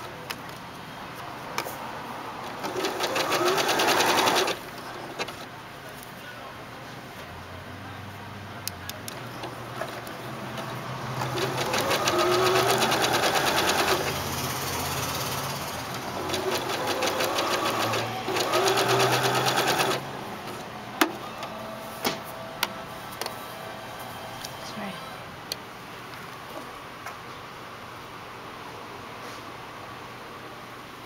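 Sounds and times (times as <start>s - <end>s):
sewing machine stitching: 2.5s - 5.4s, 9.8s - 20.1s.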